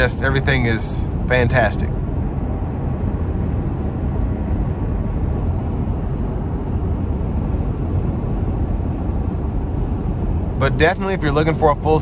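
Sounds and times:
road and wind noise in cab: 0.0s - 12.0s.

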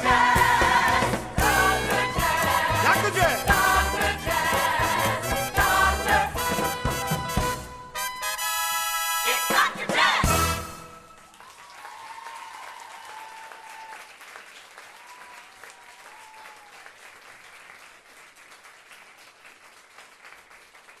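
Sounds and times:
audience applauding: 11.0s - 21.0s
high whoops: 11.4s - 14.1s, 14.8s - 17.0s.

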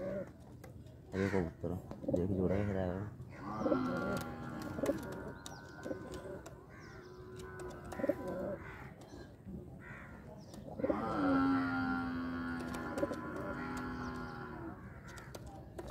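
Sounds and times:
pigeons cooing: 0.0s - 0.6s, 1.2s - 15.9s
long low drawn-out call: 2.5s - 9.0s.

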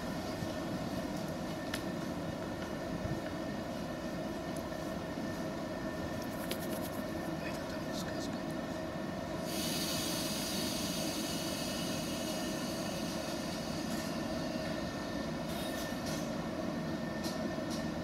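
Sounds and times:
train equipment roar: 0.0s - 18.0s
hiss: 9.4s - 14.6s.

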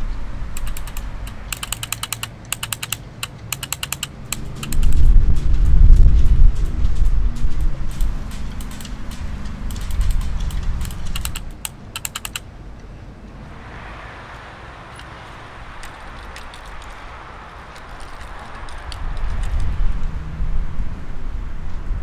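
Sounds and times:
low rumble: 4.2s - 11.5s, 13.2s - 22.0s
steady hiss: 13.3s - 21.6s.

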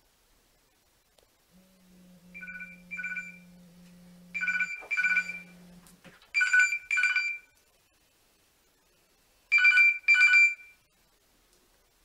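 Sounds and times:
telephone bell ringtone: 2.4s - 3.4s, 4.4s - 5.5s, 6.4s - 7.5s, 9.5s - 10.8s.

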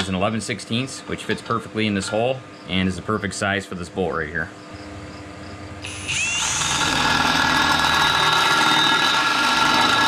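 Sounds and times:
cordless drill drilling into metal: 5.8s - 10.0s.

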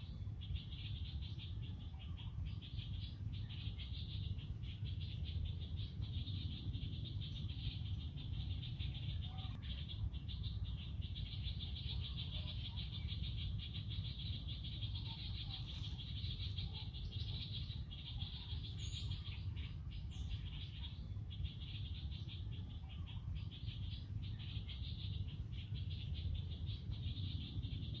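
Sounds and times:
pulsing insect chorus: 0.0s - 28.0s
steady low rumble: 0.0s - 28.0s.

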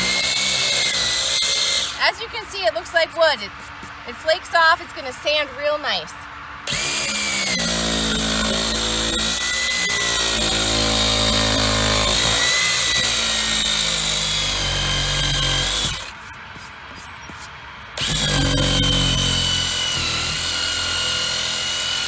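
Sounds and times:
electric sander whining: 0.0s - 2.0s, 6.7s - 16.2s, 18.0s - 22.0s.

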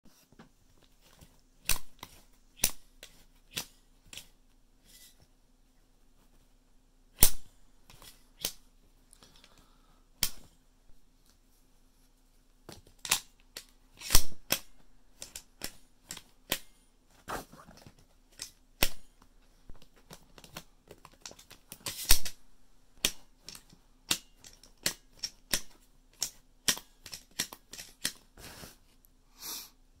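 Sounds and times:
shotgun loading clicks and clacks: 23.0s - 28.2s.

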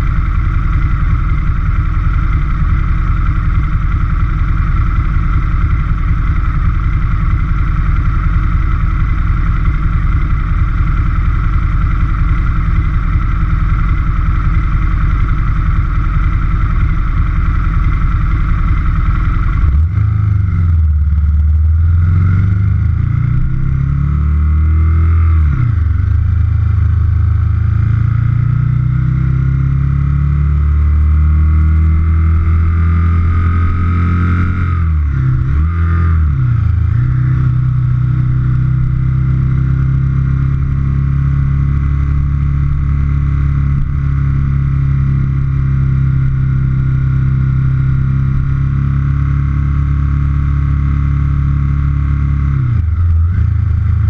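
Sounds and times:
motorcycle engine idling and revving: 0.0s - 54.0s.

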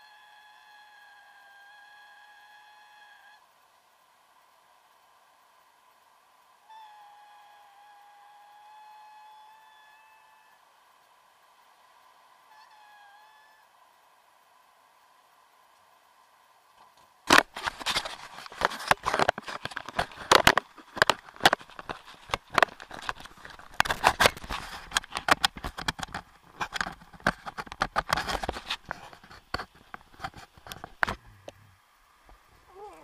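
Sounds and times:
camera knocking and scraping on mount: 17.3s - 31.2s.

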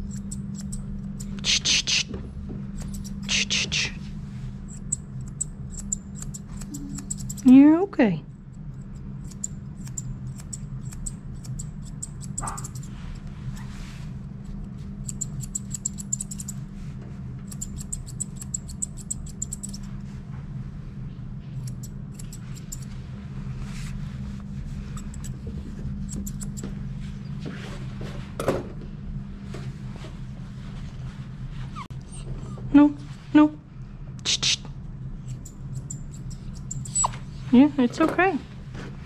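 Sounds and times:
grooming shears snipping fur: 0.0s - 2.2s, 2.8s - 4.1s, 4.7s - 7.6s, 8.7s - 13.8s, 14.4s - 16.6s, 17.4s - 20.0s, 21.5s - 27.2s, 35.2s - 38.3s
steady low hum: 0.0s - 39.0s.

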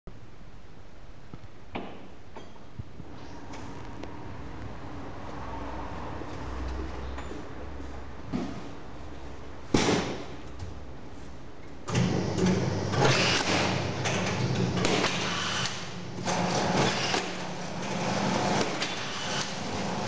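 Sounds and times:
strapping machine motor humming: 11.9s - 20.0s.

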